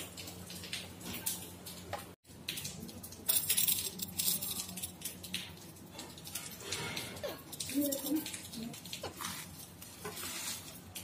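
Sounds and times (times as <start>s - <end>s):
seeds rattling in steel tumbler: 3.2s - 5.3s, 6.3s - 11.0s.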